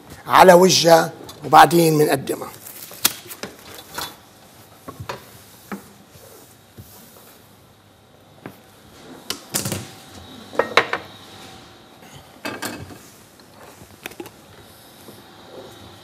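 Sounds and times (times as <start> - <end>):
dishes and utensils clattering: 12.4 - 13.0.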